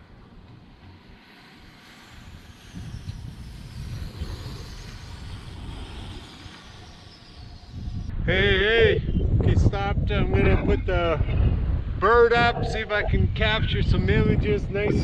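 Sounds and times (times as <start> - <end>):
wind buffeting microphone: 0.0 - 15.0
bicycle tyres hissing: 0.6 - 8.1.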